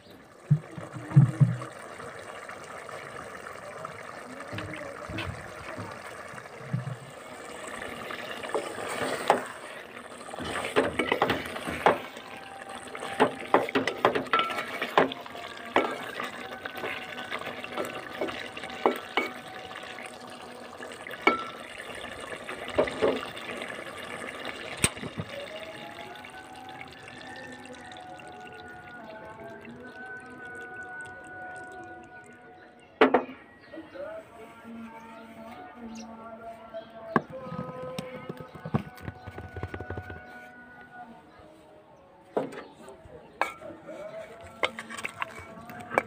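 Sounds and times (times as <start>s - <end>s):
thick curry bubbling and popping: 0.1s - 32.0s
spatula scraping metal pot: 8.1s - 18.2s, 43.4s - 46.0s.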